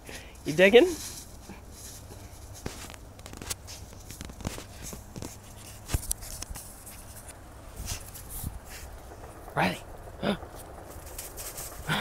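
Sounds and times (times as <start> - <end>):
puppy digging in snow: 0.4 - 9.0, 11.0 - 11.9.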